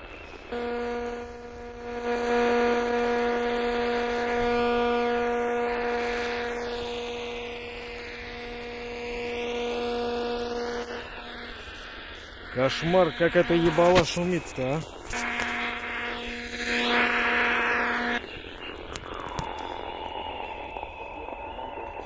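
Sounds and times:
radio hiss: 0.0s - 22.0s
radio interference buzz: 0.0s - 22.0s.

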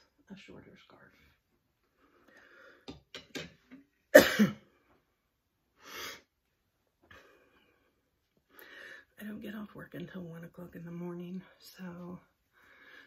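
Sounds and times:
woman coughing or sneezing: 4.1s - 4.7s.

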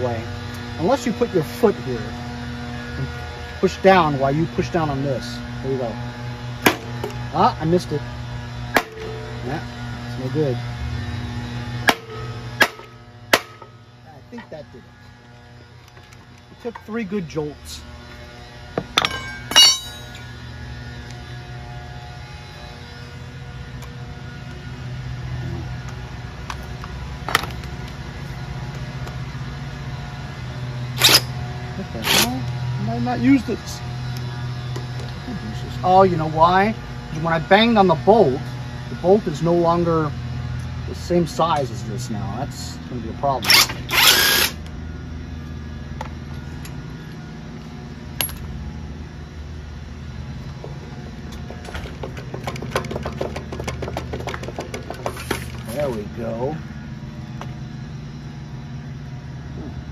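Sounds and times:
steady low hum: 0.0s - 59.9s
metal clinks of tools: 19.0s - 20.3s.

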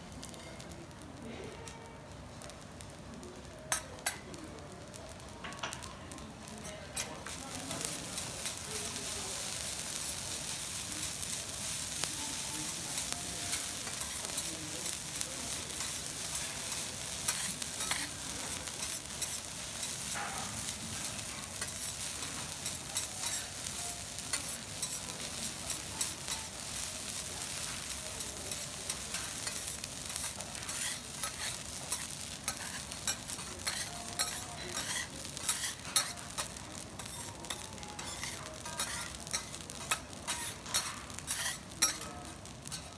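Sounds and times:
rice sizzling on a griddle: 0.0s - 42.9s
metal clicks on griddle: 3.7s - 4.3s
metal spatulas scraping griddle: 15.7s - 23.6s, 28.9s - 42.0s.

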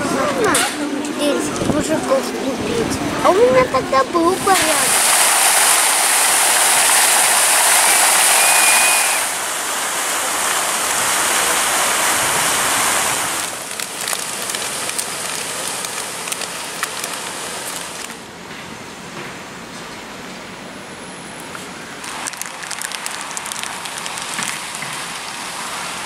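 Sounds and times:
open-air ambience: 0.0s - 26.0s
fountain water splashing: 1.2s - 18.2s, 21.4s - 26.0s.

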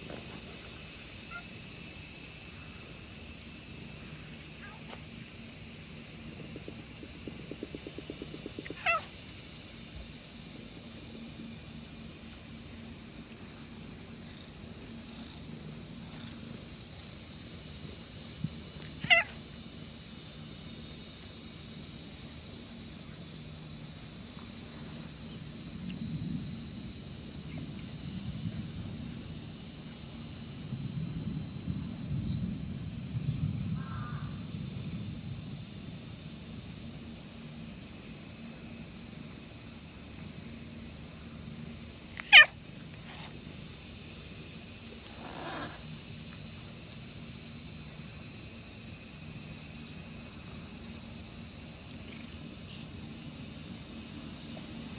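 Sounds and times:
steady high hiss: 0.0s - 54.9s
high-pitched cat cries: 8.7s - 9.1s, 19.0s - 19.4s, 42.2s - 42.6s, 45.2s - 45.8s.

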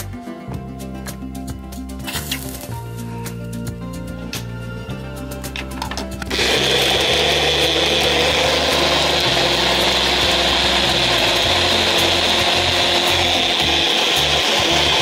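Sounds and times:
blender whirring: 6.3s - 15.0s.

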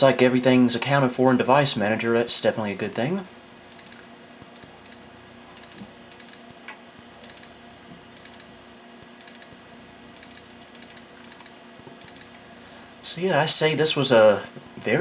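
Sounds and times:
faint steady hum: 0.0s - 15.0s
computer keyboard clicks: 7.2s - 7.5s, 8.2s - 8.5s, 9.2s - 9.5s, 10.2s - 12.4s.

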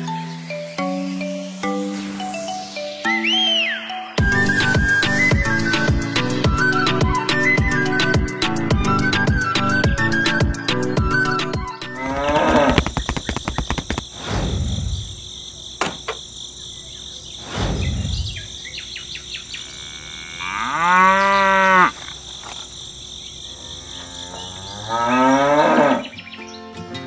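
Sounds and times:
insects chirring: 0.0s - 4.2s, 10.7s - 26.6s
cow mooing: 19.7s - 21.9s, 23.6s - 26.1s.

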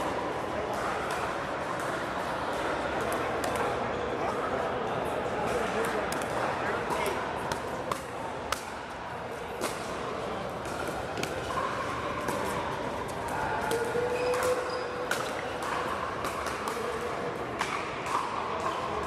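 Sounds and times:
murmur of voices: 0.0s - 19.0s
paddles hitting plastic ball: 5.6s - 8.8s, 9.5s - 19.0s.

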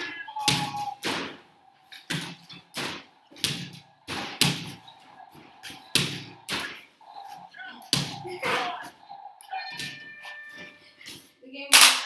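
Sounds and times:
basketballs hitting backboard and rim: 0.4s - 6.8s, 7.9s - 8.7s.

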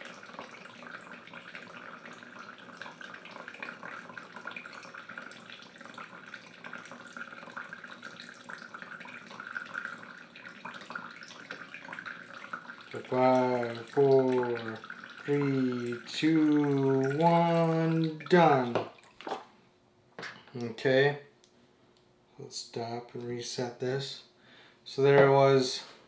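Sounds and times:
water stream into plastic cup: 0.0s - 19.4s.

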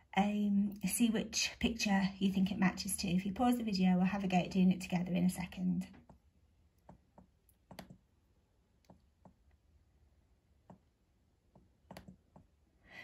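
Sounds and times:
computer mouse clicks: 6.8s - 8.0s, 11.5s - 12.5s.

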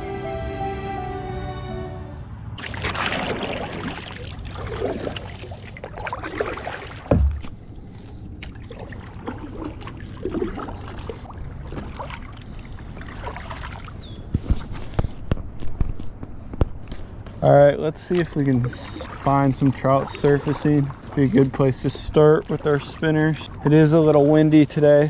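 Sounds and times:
paddle splashing in water: 2.6s - 14.9s, 18.0s - 24.7s
heavy knock: 7.1s - 7.5s.

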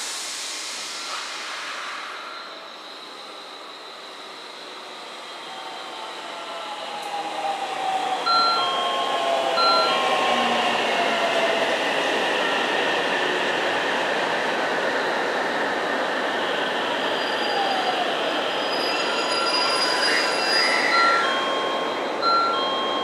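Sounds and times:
electric train braking: 0.4s - 6.3s, 17.1s - 23.0s
short beeps: 9.6s - 10.1s, 20.9s - 23.0s.

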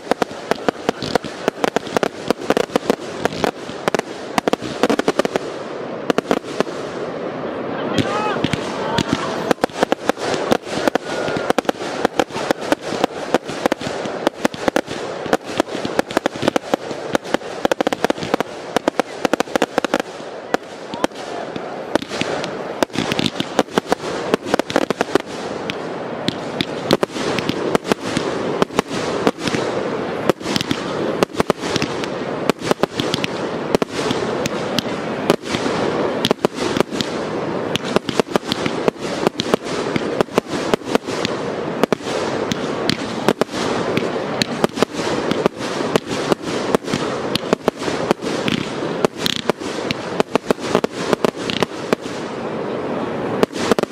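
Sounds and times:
fireworks crackle: 0.0s - 53.9s
fireworks launch thumps and bangs: 8.0s - 52.1s.

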